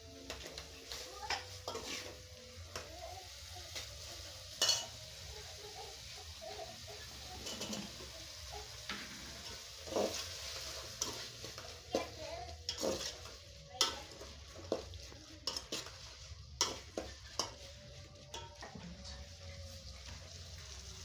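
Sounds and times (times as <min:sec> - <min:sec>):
soft hiss from hot pot: 0:00.0 - 0:21.0
spoon scraping metal pot: 0:01.3 - 0:02.2, 0:07.4 - 0:08.0.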